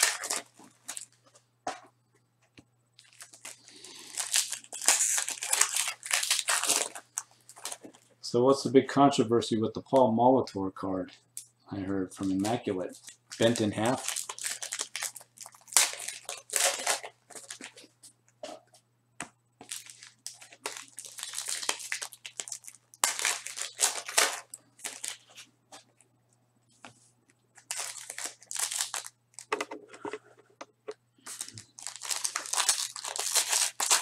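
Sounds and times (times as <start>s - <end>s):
wrappers crinkling: 0.0s - 1.2s, 3.0s - 8.1s, 12.2s - 17.9s, 19.6s - 26.0s, 27.5s - 29.5s, 31.2s - 34.0s
faint steady hum: 0.0s - 34.0s.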